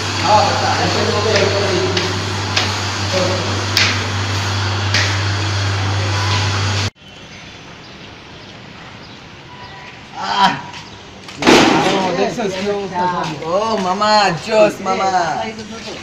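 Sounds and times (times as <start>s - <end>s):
steady low hum: 0.0s - 6.9s
footsteps on concrete stairs: 10.7s - 14.4s.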